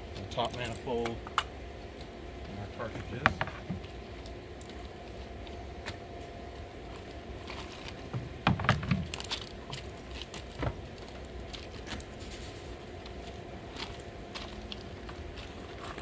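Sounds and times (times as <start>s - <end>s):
steady low hum: 0.0s - 16.0s
filter cartridges bumping and scraping: 2.8s - 4.0s, 8.0s - 9.2s.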